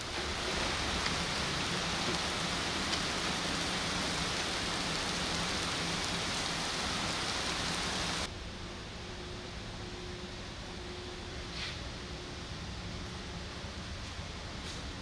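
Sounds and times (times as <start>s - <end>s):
heavy rain splashing into puddles: 0.0s - 8.3s
steady hiss: 0.0s - 15.0s.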